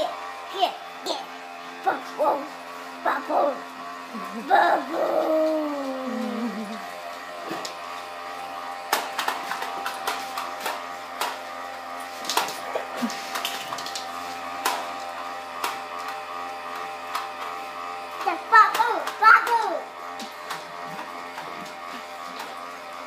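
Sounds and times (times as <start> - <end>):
bubble machine motor whirring: 0.0 - 23.0
dog whining: 4.4 - 6.8.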